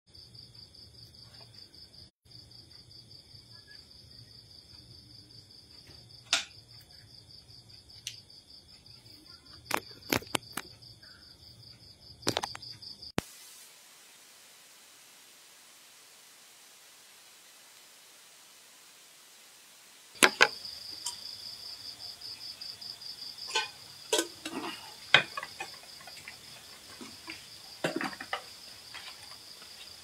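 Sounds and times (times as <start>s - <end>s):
steady hiss: 13.1s - 30.0s
sharp knocks and clicks: 20.2s - 21.2s.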